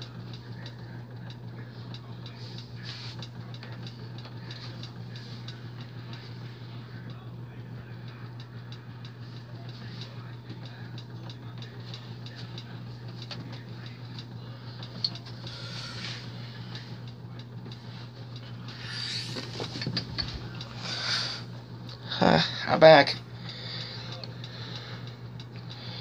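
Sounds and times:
steady low hum: 0.0s - 26.0s.

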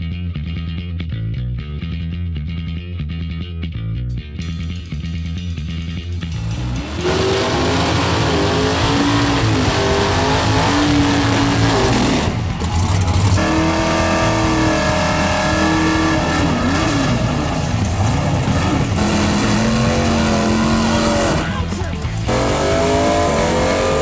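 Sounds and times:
drag car engines revving: 6.2s - 24.0s.

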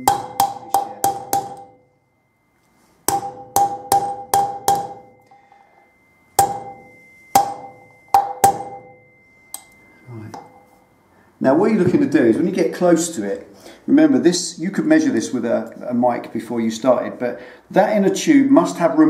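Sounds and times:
hammer tapping on metal drift: 0.0s - 2.0s, 3.0s - 10.8s.

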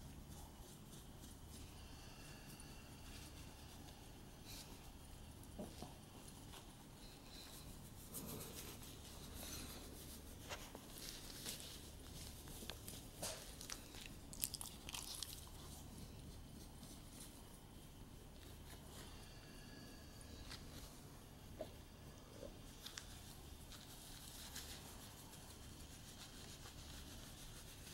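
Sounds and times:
low steady hum: 0.0s - 27.9s
dog rustling in a knit sweater: 3.1s - 19.0s, 22.7s - 27.9s.

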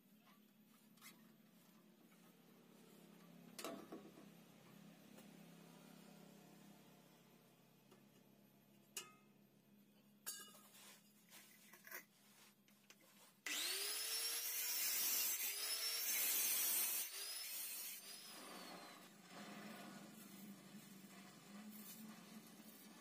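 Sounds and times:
angle grinder whining: 13.5s - 22.6s.

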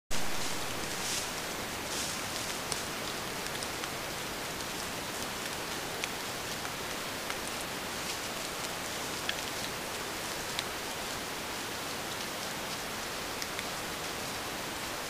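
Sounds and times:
steady hiss: 0.1s - 15.0s.

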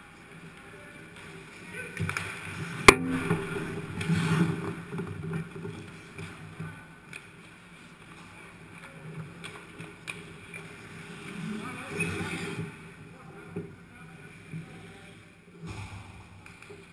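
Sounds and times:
indoor rink hum: 0.0s - 16.9s
hockey sticks and puck clacking: 0.3s - 12.8s, 16.4s - 16.9s
skates scraping on ice: 4.0s - 6.6s, 9.2s - 12.8s.

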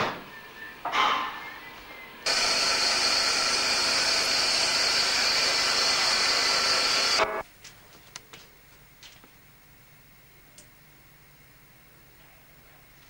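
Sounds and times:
bandsaw cutting wood: 2.3s - 7.3s.

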